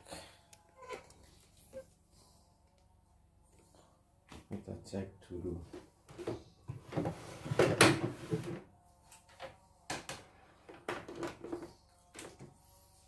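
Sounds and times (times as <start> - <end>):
plastic clattering and knocking: 10.0 - 11.7.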